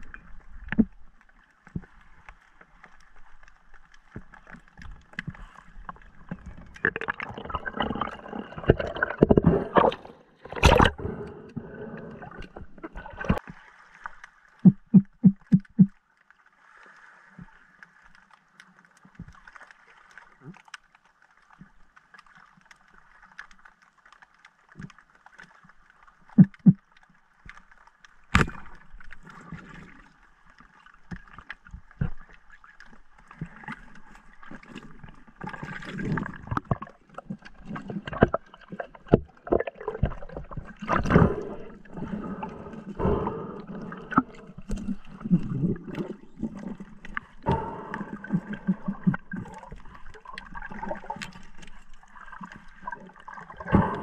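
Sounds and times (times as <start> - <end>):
clicks knocks and bubbling: 3.4 - 13.4, 14.6 - 16.0, 26.3 - 26.9, 28.3 - 30.0, 31.0 - 54.0
underwater knocks: 6.3 - 11.0, 14.6 - 16.0.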